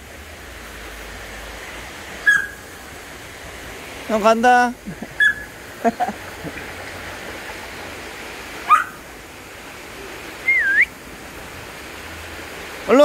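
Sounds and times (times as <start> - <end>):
mountain stream rushing: 0.0 - 13.0
dog chirping whines: 2.2 - 2.6, 5.2 - 5.5, 8.7 - 9.0.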